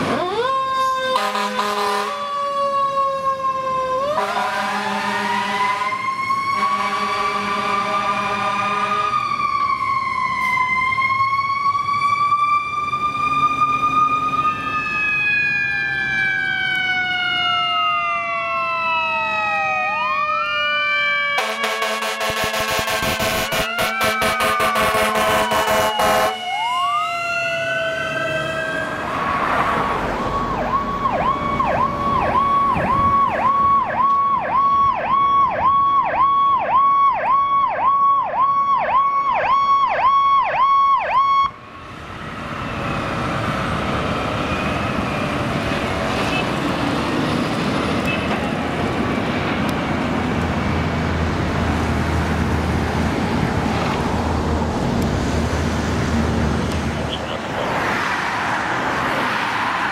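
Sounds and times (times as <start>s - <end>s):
falling siren tone: 0.0s - 46.7s
fire truck siren warbling: 0.0s - 59.9s
road noise: 0.0s - 59.9s.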